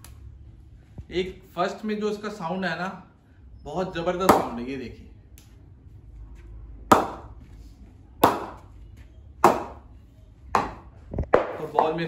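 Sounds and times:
ball bouncing on cricket bat: 4.2 - 4.6, 6.9 - 7.4, 8.2 - 8.7, 9.4 - 9.9, 10.6 - 12.0.

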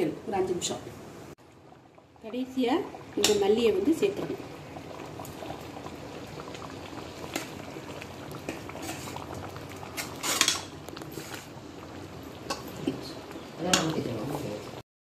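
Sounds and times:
gravy simmering and bubbling: 1.3 - 14.8
steel spoon scraping a pan: 8.5 - 9.2, 9.9 - 11.5.

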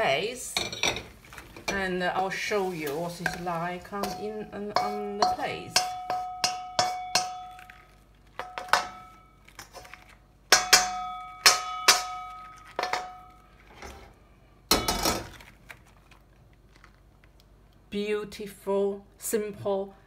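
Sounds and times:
spoon scraping wok: 0.6 - 14.2
spoon knocking on wok: 3.2 - 7.6, 8.4 - 9.2, 10.5 - 13.3.

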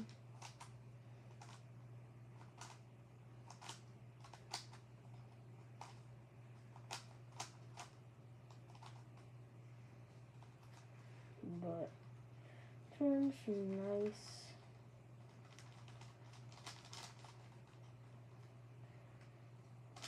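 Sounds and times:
plastic puzzle cube clicks: 15.5 - 17.8.

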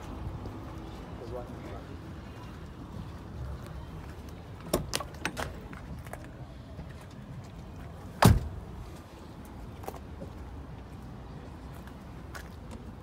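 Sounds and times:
car door shutting thud: 8.2 - 8.6.

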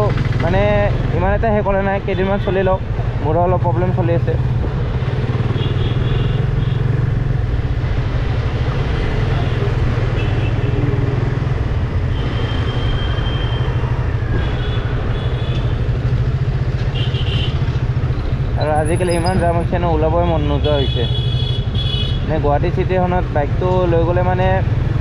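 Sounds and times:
motorcycle engine running: 0.0 - 1.4, 3.0 - 7.7
road and wind noise: 0.0 - 25.0.

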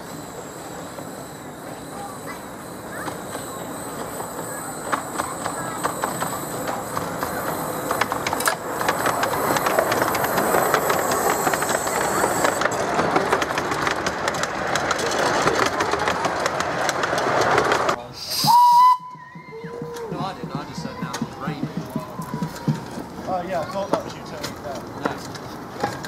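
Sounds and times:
train wheels clicking over rail joints: 0.0 - 26.0
steam locomotive whistle: 18.2 - 19.6.

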